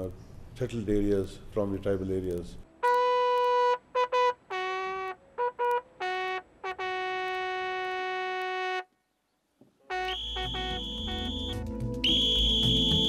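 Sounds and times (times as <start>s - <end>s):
bugle call: 2.8s - 8.9s, 9.8s - 13.0s.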